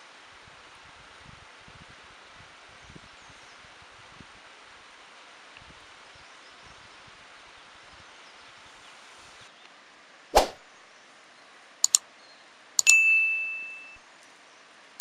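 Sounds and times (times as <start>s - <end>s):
faint outdoor hiss: 0.0s - 15.0s
whoosh sound effect: 10.4s - 10.6s
bell-like ding: 12.8s - 14.0s.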